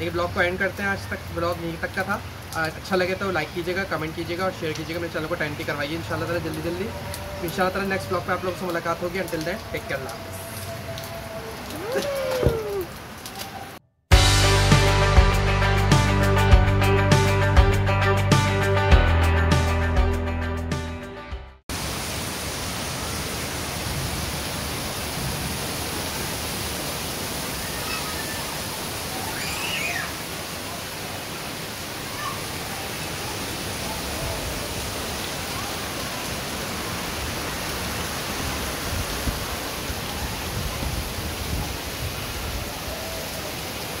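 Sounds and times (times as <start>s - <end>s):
steady rain falling: 0.0s - 15.2s, 21.7s - 44.0s
music track: 14.1s - 21.6s.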